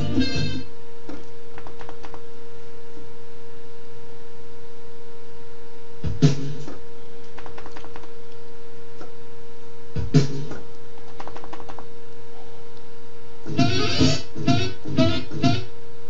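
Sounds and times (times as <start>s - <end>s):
sampler held tone: 13.4s - 16.0s.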